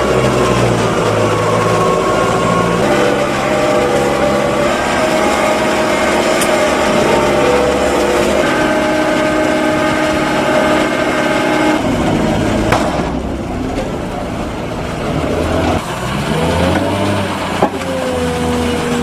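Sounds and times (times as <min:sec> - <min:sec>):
forage wagon unloading silage: 0:00.0 - 0:19.0
tractor engine running under load: 0:00.0 - 0:19.0.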